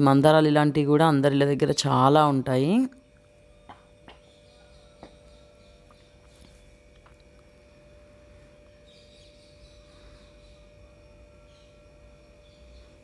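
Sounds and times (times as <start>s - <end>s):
faint steady hum: 0.0s - 13.0s
distant bird chirps: 3.5s - 13.0s.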